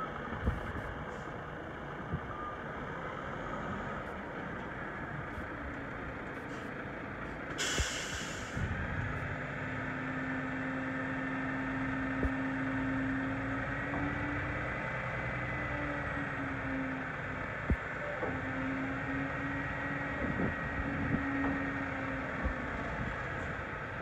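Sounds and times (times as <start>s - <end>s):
diesel engine running: 0.0s - 24.0s
hiss of released air: 7.6s - 8.6s.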